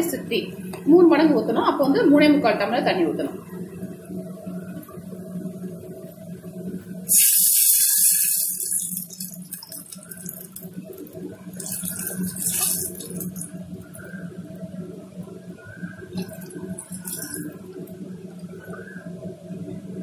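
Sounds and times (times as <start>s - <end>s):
steady low hum: 0.0s - 20.0s
water hissing in hot oil: 7.0s - 14.1s, 16.2s - 17.8s.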